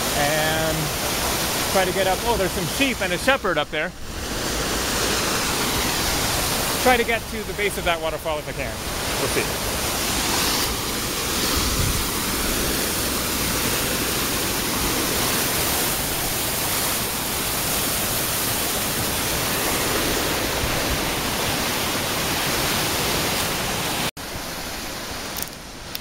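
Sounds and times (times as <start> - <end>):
waterfall rushing over boulders: 0.0 - 26.0.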